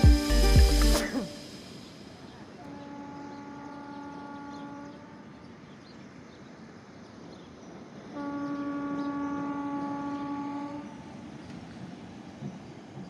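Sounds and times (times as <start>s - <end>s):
train horn blasts: 2.6s - 5.3s, 8.1s - 11.1s.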